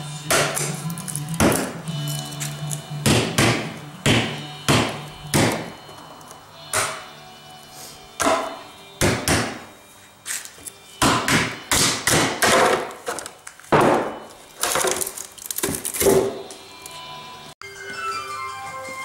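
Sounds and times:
fiberglass scraping and cracking: 14.6s - 16.2s.

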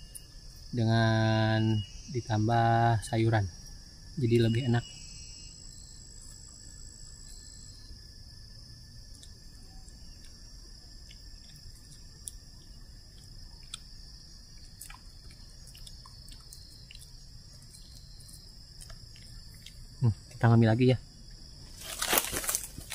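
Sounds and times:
insects droning: 0.0s - 22.9s.

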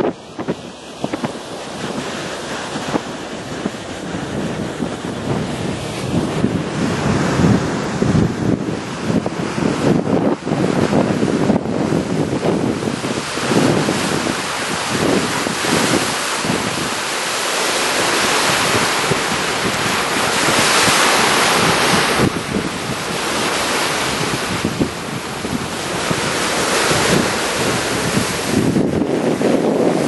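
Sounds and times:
sea water rushing along hull: 0.0s - 30.0s
wind buffeting microphone: 0.0s - 30.0s.

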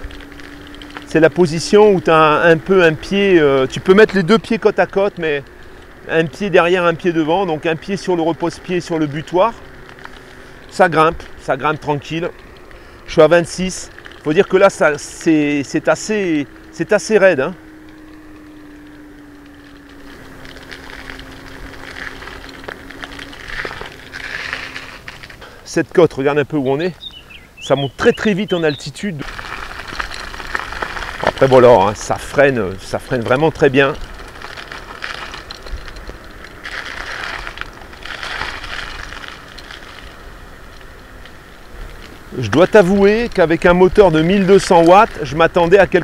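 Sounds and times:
electric scooter motor humming: 0.0s - 25.7s, 29.2s - 46.0s
rattling: 0.0s - 25.7s, 29.2s - 45.3s
scraping surges: 0.0s - 26.8s, 28.0s - 46.0s
road noise: 0.0s - 46.0s.

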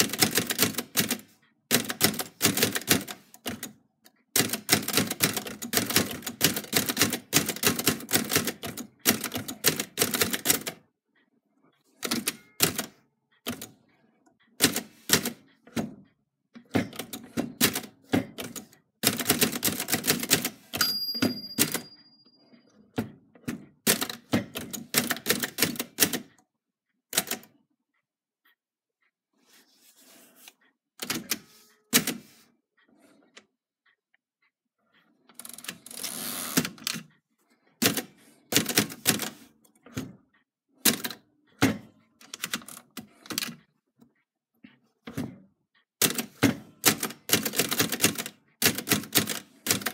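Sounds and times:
manual typewriter typing: 0.0s - 10.8s, 12.0s - 13.8s, 14.6s - 16.0s, 16.7s - 21.9s, 23.8s - 26.3s, 27.1s - 27.5s, 31.0s - 32.3s, 35.4s - 37.1s, 37.8s - 39.5s, 40.8s - 41.2s, 42.2s - 43.6s, 46.0s - 49.9s
typewriter bell ring: 12.0s - 13.0s, 20.2s - 22.6s.

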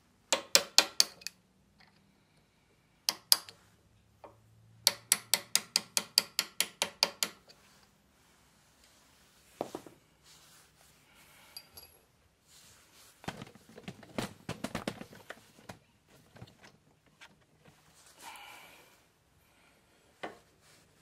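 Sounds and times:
light metal knocks and clinks: 11.5s - 12.1s.

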